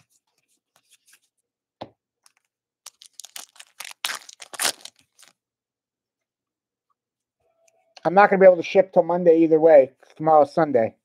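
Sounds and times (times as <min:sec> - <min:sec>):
foil wrapper crinkling: 0:02.9 - 0:05.4.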